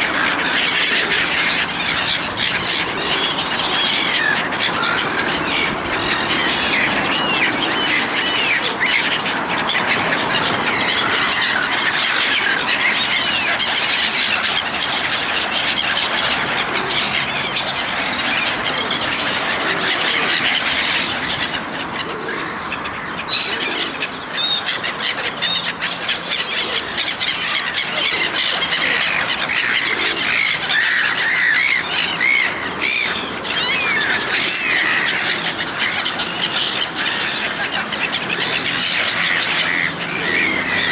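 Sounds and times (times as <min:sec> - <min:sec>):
gulls squawking and crying: 0:00.0 - 0:40.9.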